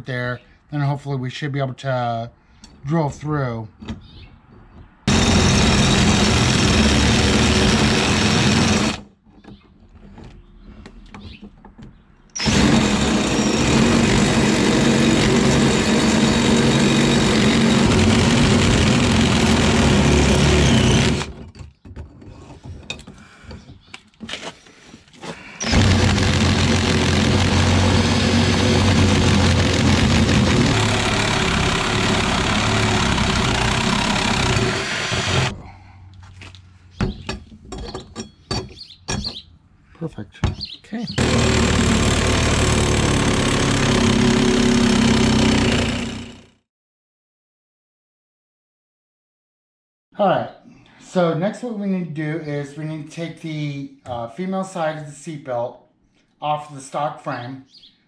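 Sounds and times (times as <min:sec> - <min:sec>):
cordless drill boring through metal: 0:05.1 - 0:09.0, 0:12.4 - 0:21.4, 0:25.6 - 0:35.6, 0:41.2 - 0:46.5.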